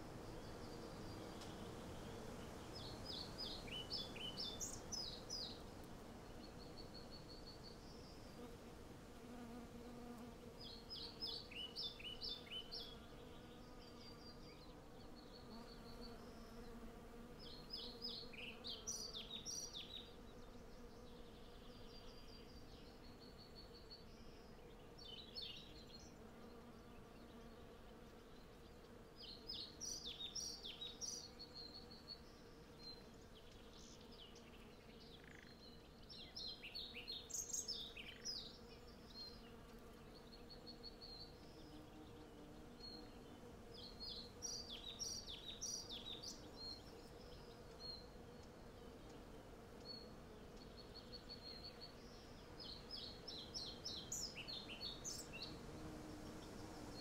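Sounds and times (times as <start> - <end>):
songbirds singing: 0.0 - 8.6, 9.3 - 57.0.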